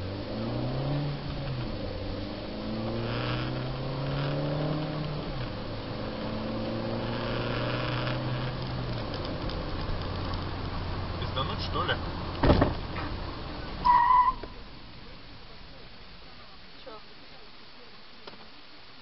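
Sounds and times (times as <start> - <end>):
car engine accelerating: 0.0 - 14.6.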